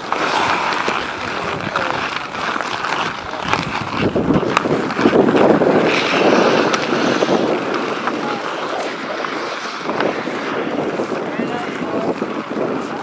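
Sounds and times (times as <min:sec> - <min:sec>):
hockey sticks clicking: 0:00.0 - 0:13.0
skates scraping on ice: 0:00.0 - 0:13.0
wind buffeting microphone: 0:00.0 - 0:13.0.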